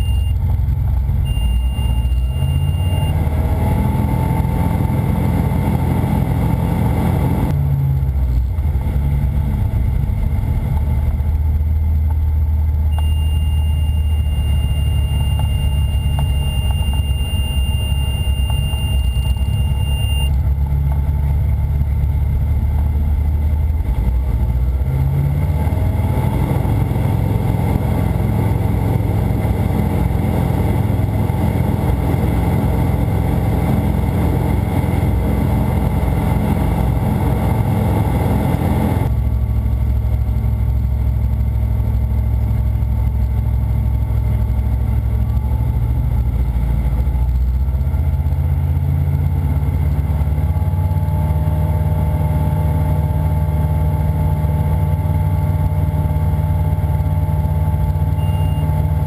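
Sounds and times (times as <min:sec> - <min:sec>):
light aircraft engine and propeller: 0:00.0 - 0:59.0.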